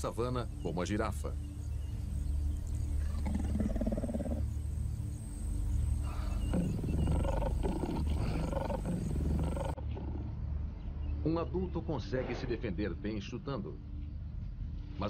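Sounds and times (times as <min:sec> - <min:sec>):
lion growling and snarling: 0:03.0 - 0:04.5, 0:06.0 - 0:10.4.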